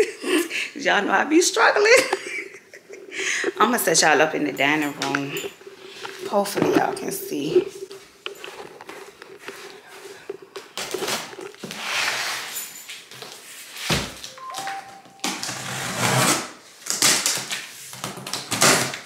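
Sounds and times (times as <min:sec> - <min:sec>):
cardboard tearing and rustling: 0:10.6 - 0:12.5, 0:15.3 - 0:19.0.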